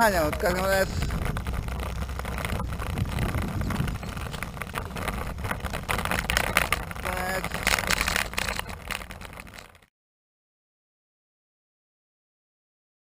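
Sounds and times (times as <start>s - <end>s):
small clicks and rattles: 0.0s - 9.9s
tyres rumbling on asphalt: 0.0s - 9.9s
wind on microphone: 0.0s - 9.9s.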